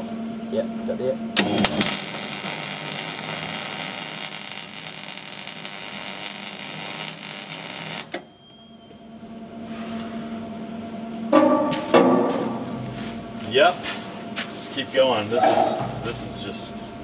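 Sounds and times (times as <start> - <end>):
low steady hum: 0.0 - 13.5
welding arc crackling hiss: 1.4 - 8.2.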